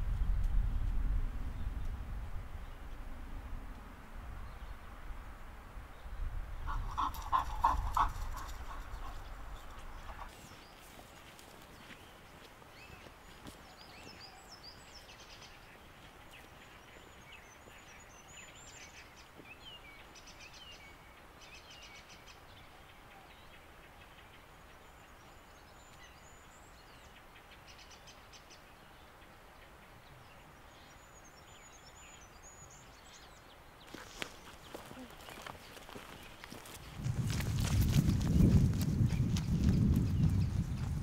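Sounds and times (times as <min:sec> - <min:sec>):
songbirds singing faintly: 0:00.0 - 0:41.0.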